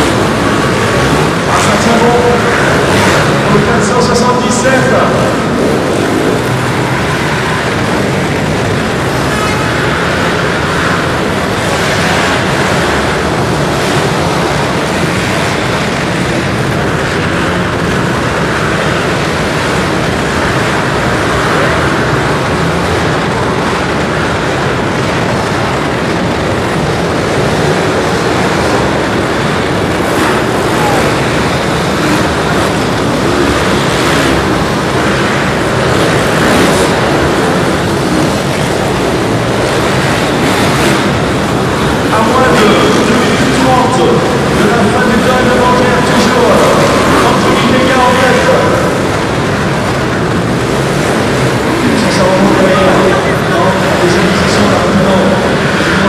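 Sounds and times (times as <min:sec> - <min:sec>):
pit bike engines revving: 0:00.0 - 0:56.0.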